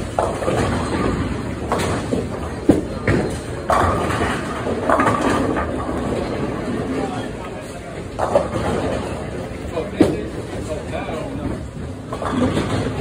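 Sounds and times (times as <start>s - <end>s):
bowling ball rolling: 0.0s - 13.0s
bowling pins crashing: 0.1s - 7.0s.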